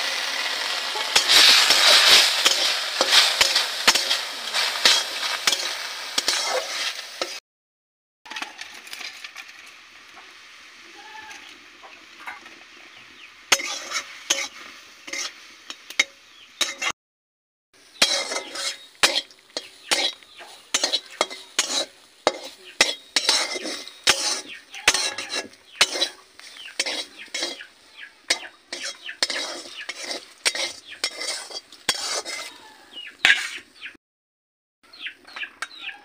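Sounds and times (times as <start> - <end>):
food sizzling in hot oil: 0.0 - 7.4, 8.3 - 16.9, 17.8 - 33.8
spatula scraping and knocking pan: 0.6 - 7.4, 13.5 - 16.9, 17.9 - 32.6, 33.2 - 33.7.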